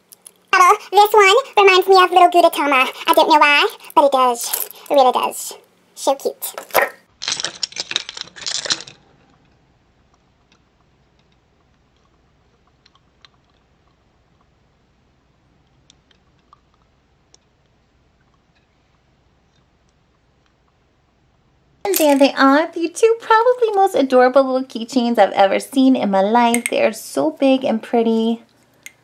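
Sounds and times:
plastic keychain handling noise: 6.6 - 9.0.

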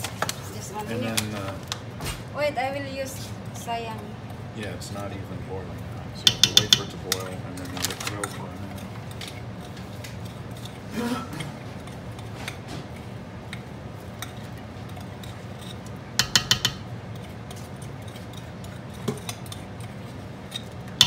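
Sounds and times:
glass jar tapping steel pot: 6.3 - 6.9, 16.2 - 16.8.

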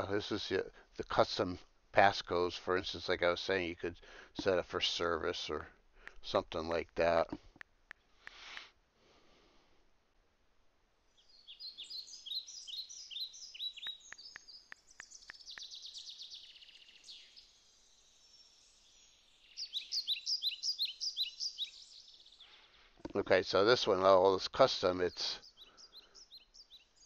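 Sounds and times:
songbird chirping: 11.0 - 27.0.

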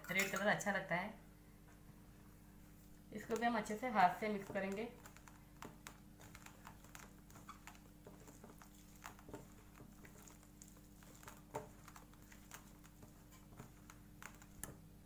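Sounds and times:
hand mixing cabbage in steel bowl: 3.2 - 15.0.

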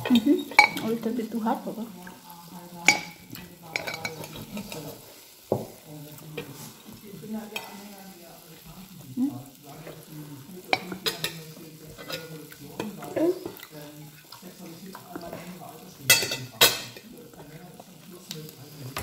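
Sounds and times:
cutlery clinking on plate: 2.8 - 4.9, 10.7 - 13.6, 16.0 - 17.1.

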